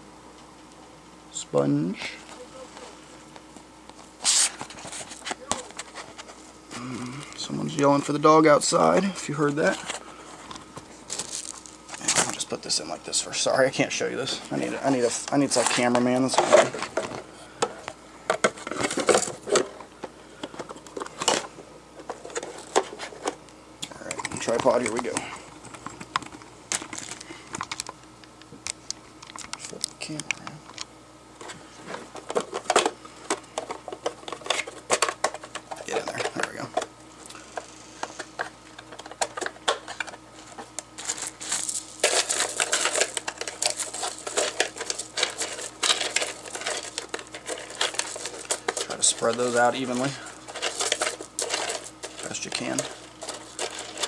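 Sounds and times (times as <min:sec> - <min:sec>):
rustling of mesh bag: 0:09.6 - 0:12.4, 0:40.3 - 0:54.0
filter media rattling in plastic basket: 0:38.9 - 0:54.0.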